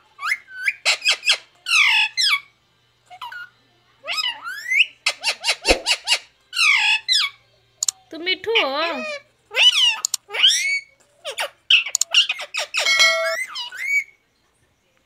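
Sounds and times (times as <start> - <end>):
parakeet chattering: 0.2 - 2.5, 3.1 - 7.4, 8.8 - 14.1
parakeet clicks: 10.0 - 10.2, 11.9 - 12.2.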